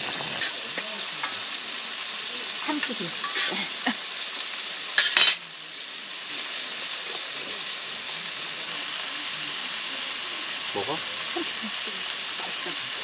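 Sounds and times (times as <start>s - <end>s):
food sizzling in a pan: 0.0s - 13.0s
metal cookware clatter: 2.8s - 3.7s, 5.0s - 5.4s.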